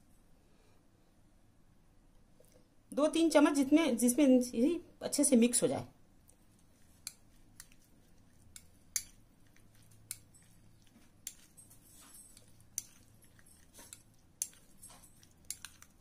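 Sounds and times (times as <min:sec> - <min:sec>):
wet squishing of sauce: 0:06.2 - 0:16.0.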